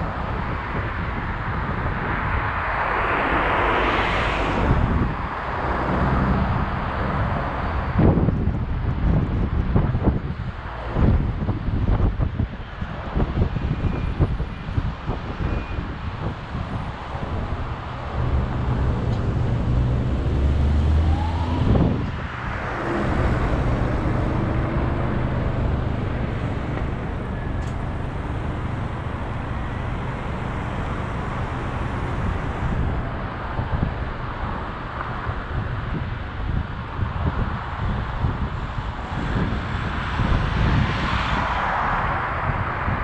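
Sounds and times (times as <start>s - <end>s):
car engine and road rumble: 0.0s - 43.0s
wind buffeting microphone: 0.0s - 43.0s
pitch sweep: 17.1s - 32.8s.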